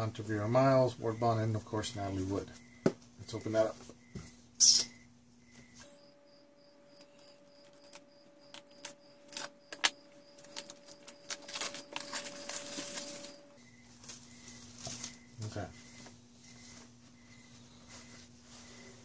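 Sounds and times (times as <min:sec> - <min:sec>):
plastic wrap crinkling: 0:07.6 - 0:15.2.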